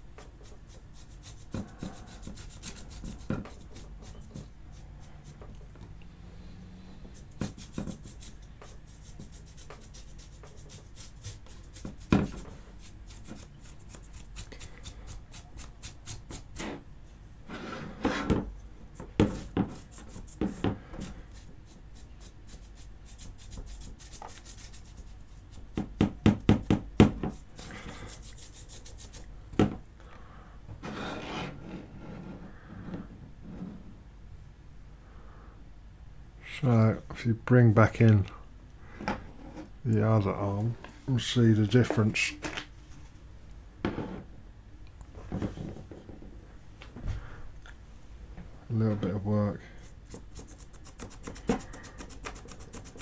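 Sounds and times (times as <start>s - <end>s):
stiff brush scratchy strokes: 0.0s - 5.6s, 6.8s - 16.8s, 19.0s - 25.8s, 27.3s - 29.3s, 48.8s - 53.0s.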